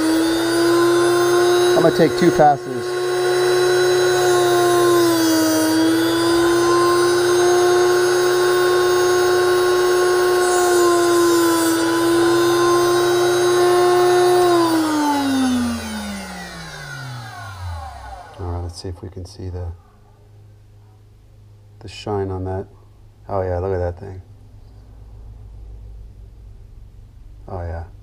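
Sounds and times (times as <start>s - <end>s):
drill bit grinding hiss: 0.0s - 18.4s
sharpener motor whine: 0.0s - 18.5s.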